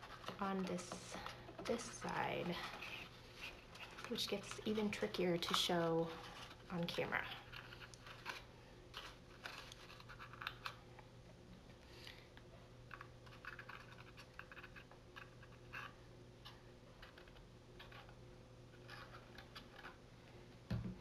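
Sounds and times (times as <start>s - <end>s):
cardstock rustling and scratching: 0.0s - 10.8s, 12.9s - 20.0s.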